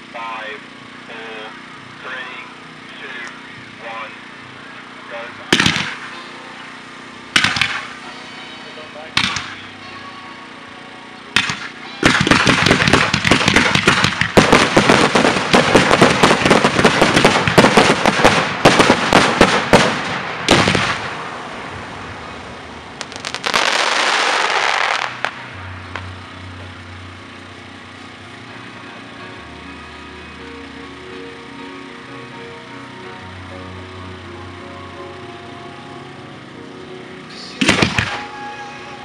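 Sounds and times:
fireworks bangs and crackling: 0:04.8 - 0:10.6, 0:11.3 - 0:28.4, 0:37.5 - 0:39.0.

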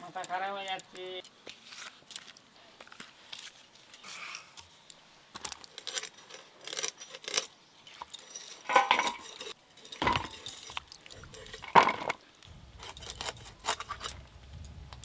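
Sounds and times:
steel dishes clinking: 0:08.0 - 0:12.2.

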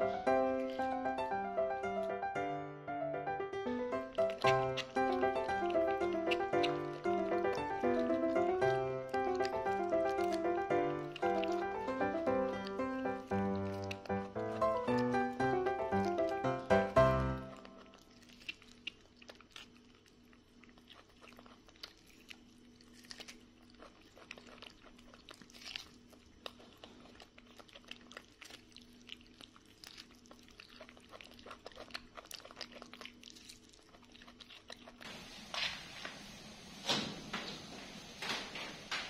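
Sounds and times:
monkey chewing corn: 0:00.0 - 0:02.1, 0:03.6 - 0:36.4
broom sweeping concrete floor: 0:35.1 - 0:39.0.

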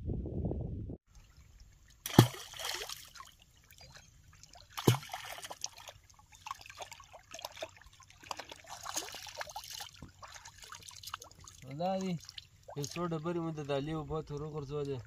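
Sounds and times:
small water splashes: 0:01.1 - 0:15.0
stone plopping into water: 0:02.0 - 0:03.3, 0:04.8 - 0:05.7.

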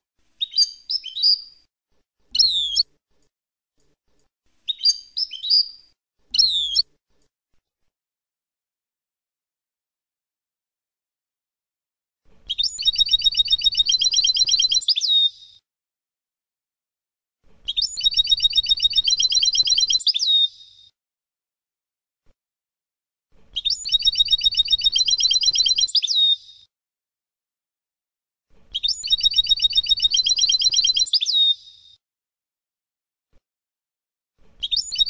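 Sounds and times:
goldfinch song: 0:00.3 - 0:01.6, 0:04.6 - 0:06.9, 0:12.5 - 0:15.6, 0:17.6 - 0:20.9, 0:23.5 - 0:26.7, 0:28.7 - 0:31.9, 0:34.6 - 0:35.0.

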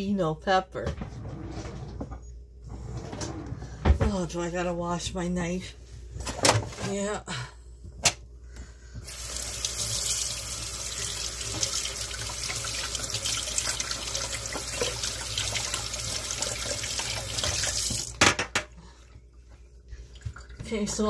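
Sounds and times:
kitchen faucet running into sink: 0:09.1 - 0:18.2.

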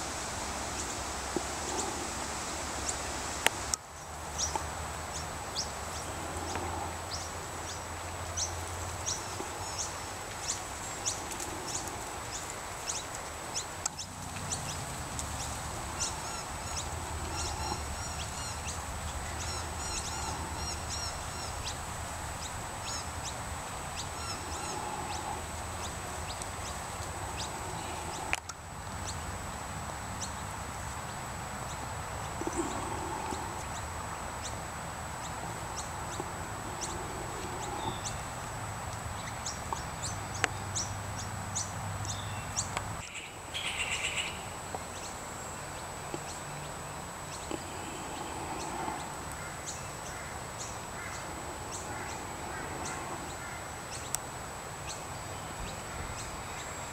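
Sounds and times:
birds chirping: 0:00.6 - 0:56.9.

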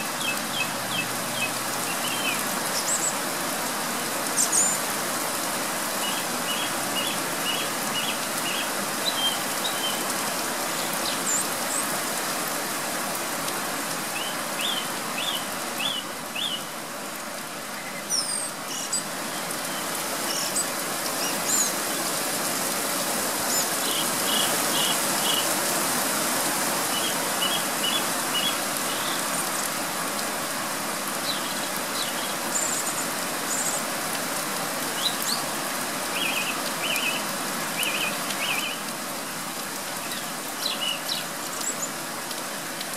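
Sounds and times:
song thrush singing: 0:00.0 - 0:03.3, 0:06.0 - 0:12.4, 0:14.1 - 0:16.8, 0:17.7 - 0:22.1, 0:23.5 - 0:25.6, 0:26.8 - 0:29.8, 0:31.1 - 0:33.9, 0:34.9 - 0:39.4, 0:40.0 - 0:42.0
pouring rain hiss: 0:00.0 - 0:42.9.

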